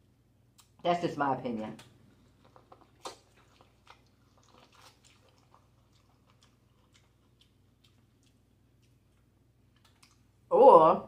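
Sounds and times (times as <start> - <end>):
chewing corn on the cob: 1.8 - 10.3.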